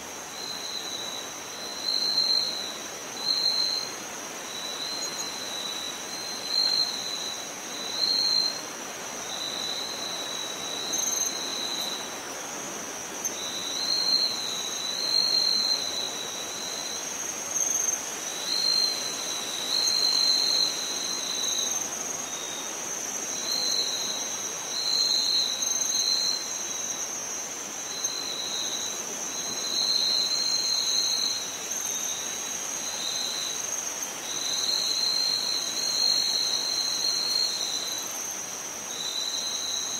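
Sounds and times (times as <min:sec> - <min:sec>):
high-pitched insect trill: 0:00.0 - 0:39.9
lower insect trill bursts: 0:13.0 - 0:39.9.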